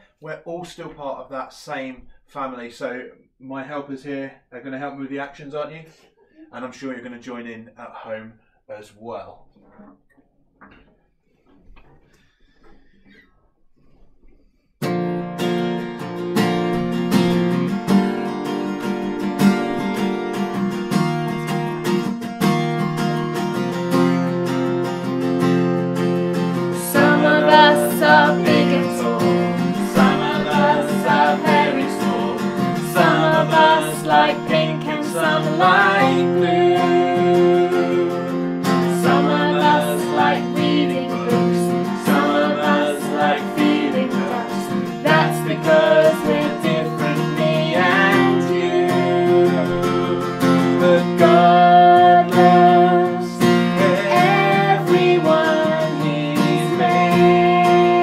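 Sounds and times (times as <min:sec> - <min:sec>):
acoustic guitar strumming: 0:14.8 - 0:58.0
man and girls singing: 0:26.7 - 0:58.0.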